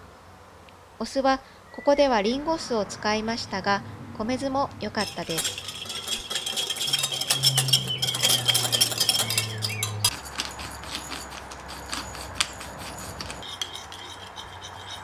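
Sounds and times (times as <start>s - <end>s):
pepper mill grinding: 5.0s - 15.0s
whisk clinking against glass bowl: 5.0s - 15.0s.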